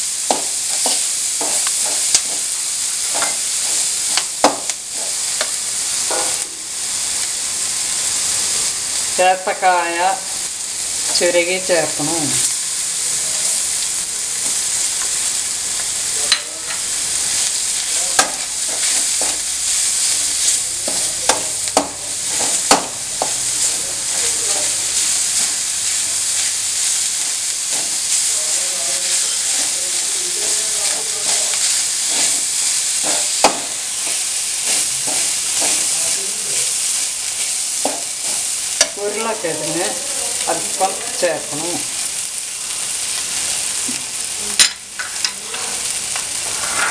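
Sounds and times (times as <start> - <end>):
food sizzling in oil: 0.0 - 46.9
spatula knocking pan: 0.3 - 2.5, 3.1 - 3.4, 18.1 - 19.4, 20.8 - 23.4, 33.0 - 36.0.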